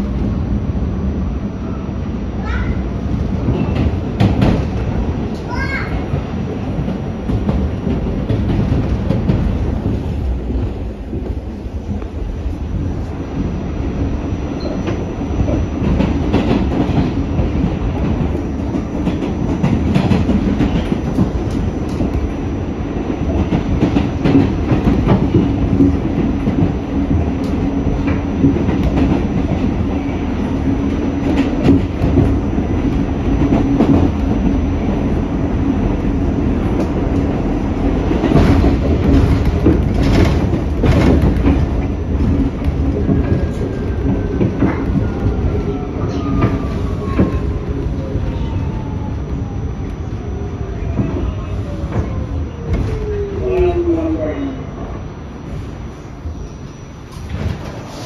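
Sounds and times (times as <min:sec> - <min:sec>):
subway car rumble: 0:00.0 - 0:58.0
wheels clacking over rail joints: 0:35.7 - 0:48.0.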